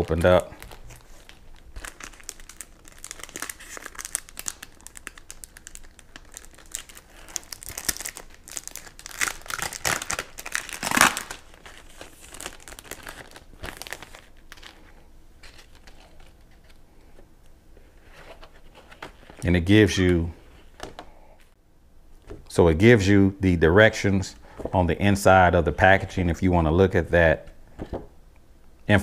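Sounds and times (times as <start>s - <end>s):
plastic packaging crinkling: 0.0s - 16.8s.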